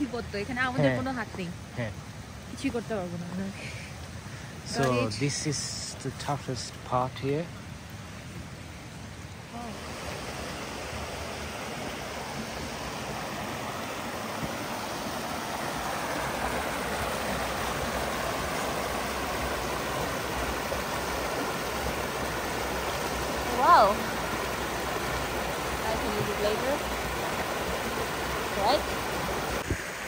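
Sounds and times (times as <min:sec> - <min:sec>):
brook rushing over rocks: 0:09.5 - 0:29.9.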